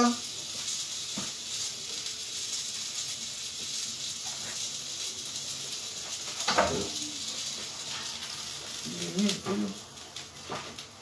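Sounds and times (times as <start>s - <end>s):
steady hiss: 0.0s - 11.0s
kitchen knock or clatter: 6.4s - 6.9s.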